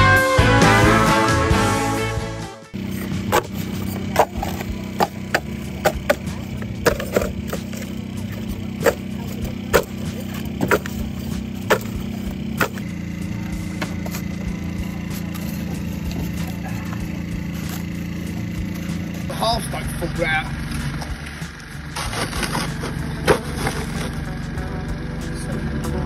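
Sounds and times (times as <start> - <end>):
steady low hum: 2.8 - 26.0
bricks clacking together: 3.3 - 7.9.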